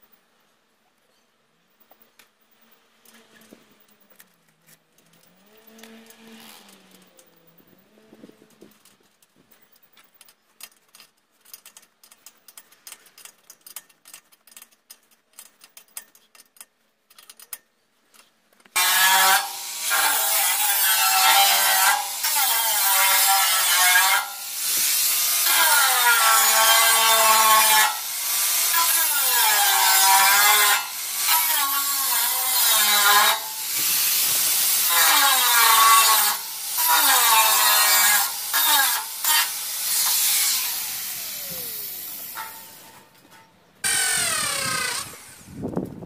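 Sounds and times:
power tool cutting sheet metal: 0:05.6 - 0:07.2, 0:18.8 - 0:43.1, 0:43.8 - 0:45.8.

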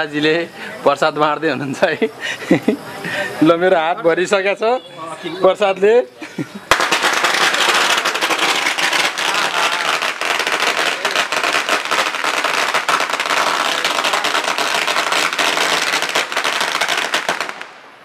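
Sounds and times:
firecrackers cracking and popping: 0:06.6 - 0:18.0.

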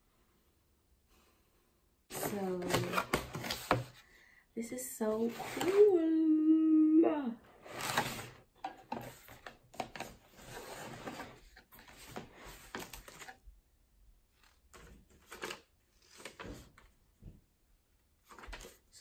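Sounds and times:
paper and cardboard rustling: 0:02.1 - 0:04.0, 0:05.1 - 0:06.0, 0:07.6 - 0:13.4, 0:14.4 - 0:17.0.

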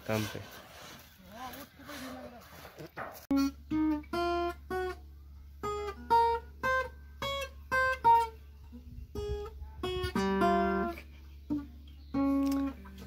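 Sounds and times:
acoustic guitar picked melody: 0:03.3 - 0:13.0.

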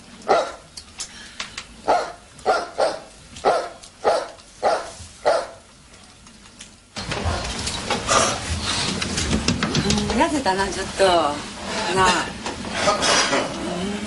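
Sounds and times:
dog barking: 0:00.2 - 0:00.7, 0:01.8 - 0:05.6.

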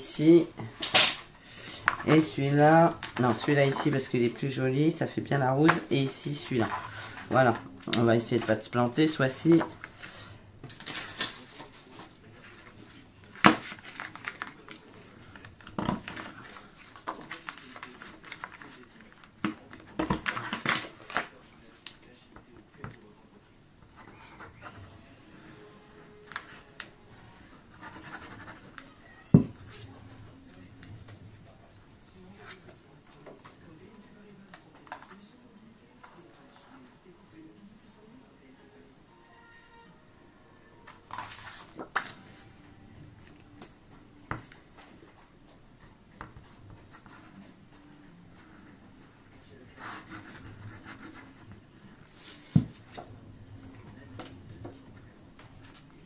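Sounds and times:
paper scratching and rustling: 0:01.8 - 0:04.9, 0:06.2 - 0:21.9, 0:26.2 - 0:29.1, 0:41.1 - 0:42.5, 0:48.3 - 0:53.0.

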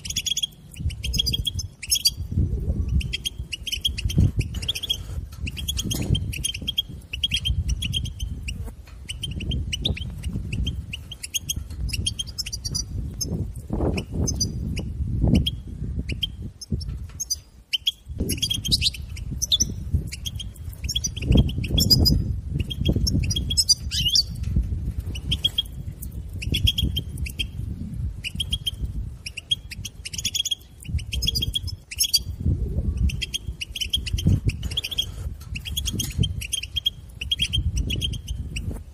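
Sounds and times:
goldfinch twittering: 0:00.0 - 0:02.3, 0:02.9 - 0:24.4, 0:28.2 - 0:32.4.

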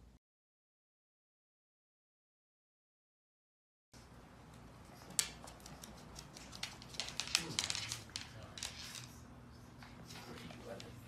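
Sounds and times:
puppy paws clicking on wood floor: 0:04.0 - 0:11.0.

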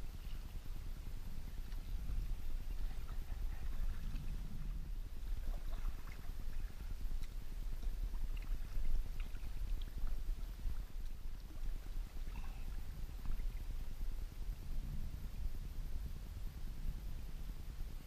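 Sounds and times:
wind on microphone: 0:00.0 - 0:18.0
small water splashes and drips: 0:05.2 - 0:13.9.

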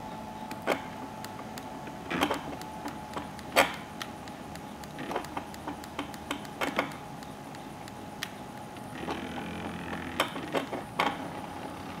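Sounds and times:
stepper motors ticking: 0:00.0 - 0:10.3
steady hum: 0:00.0 - 0:12.0
motor whine: 0:07.0 - 0:12.0.

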